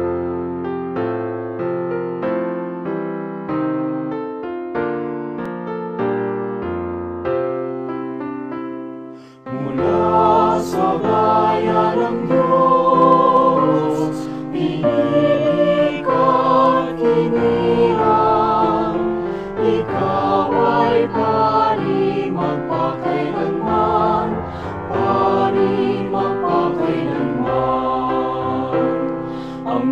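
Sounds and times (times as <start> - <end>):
choir singing with accompaniment: 9.4 - 29.9.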